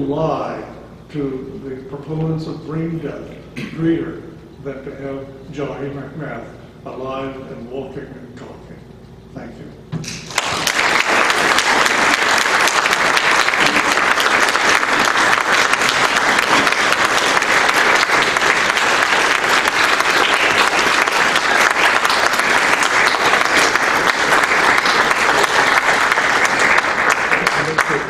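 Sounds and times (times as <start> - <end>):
audience applauding: 10.1 - 28.0.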